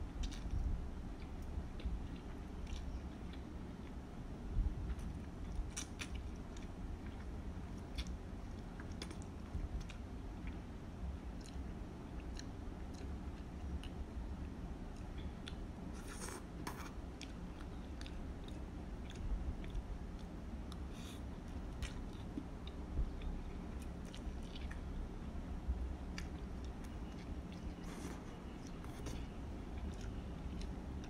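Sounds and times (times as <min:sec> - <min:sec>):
low steady hum: 0:00.0 - 0:31.0
chewing and slurping noodles: 0:26.2 - 0:31.0.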